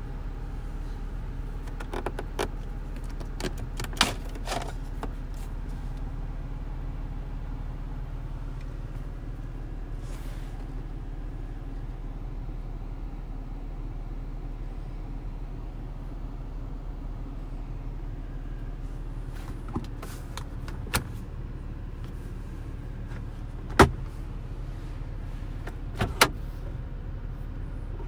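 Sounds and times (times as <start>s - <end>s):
car engine drone inside cabin: 0.0s - 28.0s.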